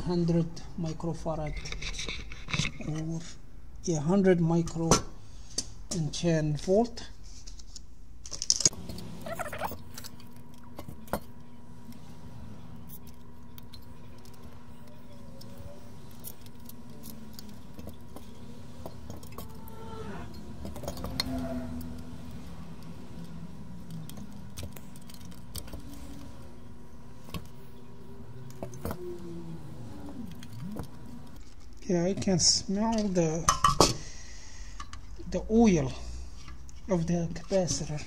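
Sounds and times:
electrical hum: 7.8 - 38.0
small metallic clicks: 12.8 - 29.3.

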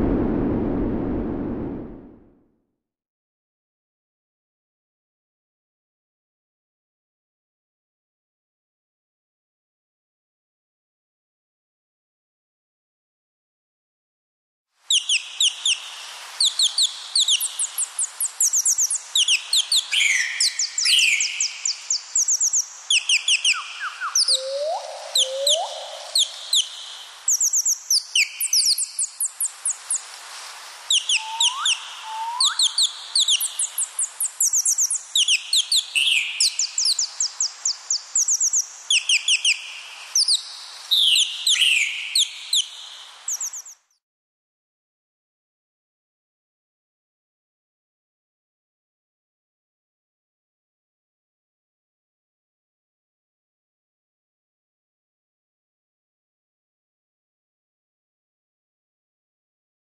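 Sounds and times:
birds chirping: 17.2 - 29.9, 30.9 - 40.4, 43.3 - 43.8
low rising bird whistles: 23.4 - 26.3, 30.9 - 33.7.

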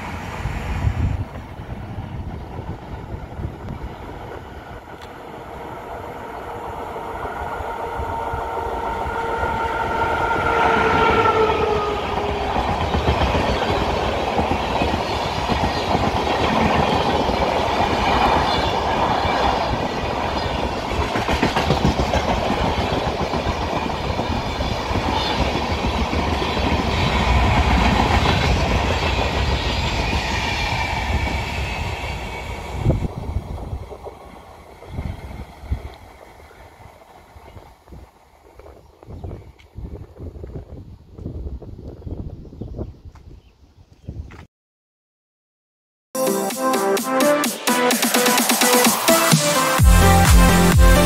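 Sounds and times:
passenger coaches rumbling past: 0.0 - 36.9
train horn: 6.2 - 12.7.

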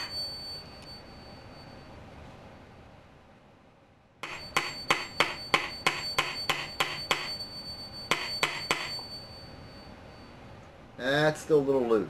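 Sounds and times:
hammer tapping metal rod: 0.0 - 1.0, 4.2 - 9.3.

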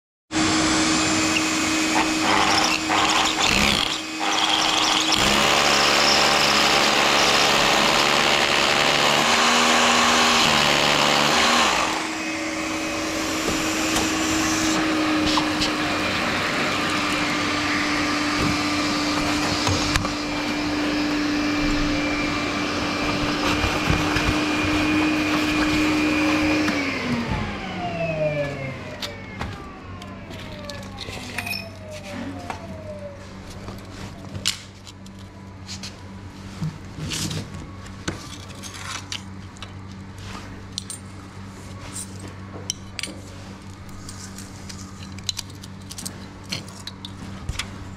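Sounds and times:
vacuum cleaner running: 0.3 - 34.8
hammer drill boring into concrete: 1.2 - 12.2.

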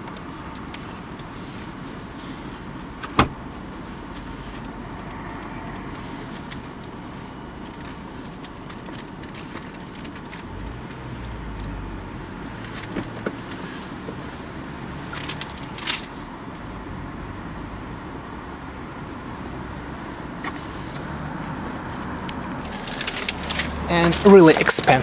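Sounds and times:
car door clicks: 3.0 - 3.4
person shifting on leather seat: 20.4 - 25.0.

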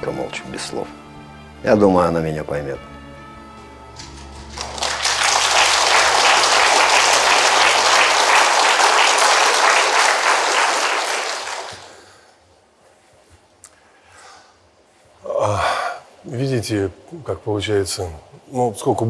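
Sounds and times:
audience applauding: 4.4 - 12.2.

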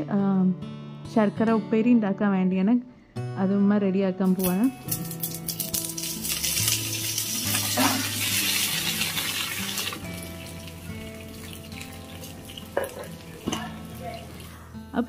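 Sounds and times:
soft background music: 0.0 - 15.0
leaves sizzling in hot oil: 4.4 - 14.6.

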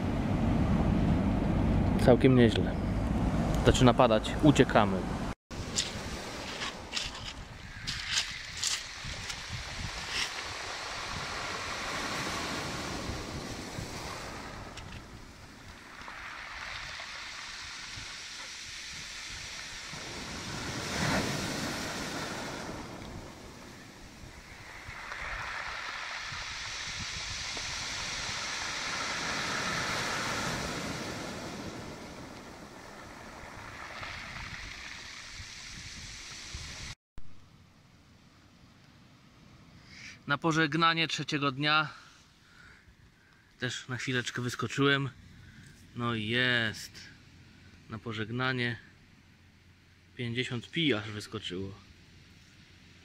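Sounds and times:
waves breaking on pebbles: 5.5 - 37.0.

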